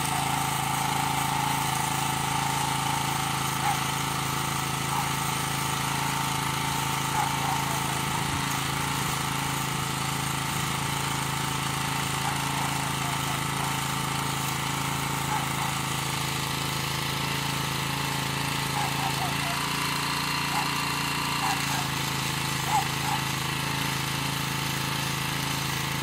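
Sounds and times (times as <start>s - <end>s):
arc welding crackle and hiss: 0.0s - 16.8s
generator engine running: 0.0s - 26.0s.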